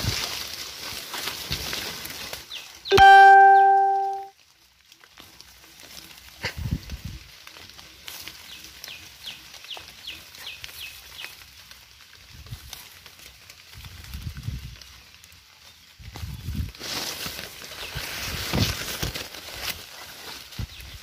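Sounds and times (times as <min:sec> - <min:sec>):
hands rustling wet leaves: 0:00.0 - 0:21.0
bird calling high falling notes: 0:02.9 - 0:04.3.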